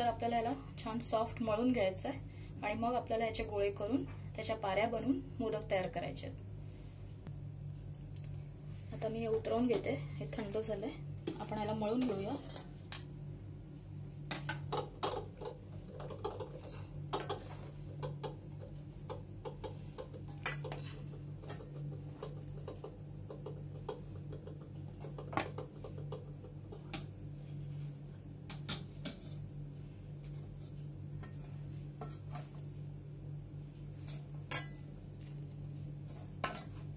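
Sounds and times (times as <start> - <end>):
steady low hum: 0.0 - 36.9
utensils scraping and tapping on pan: 31.2 - 32.7.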